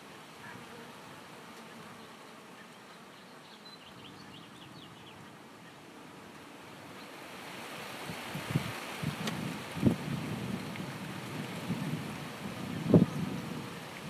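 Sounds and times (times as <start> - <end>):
bees buzzing faintly: 0.0 - 14.0
steady outdoor hiss: 0.0 - 14.0
wind gusts on microphone: 3.8 - 14.0.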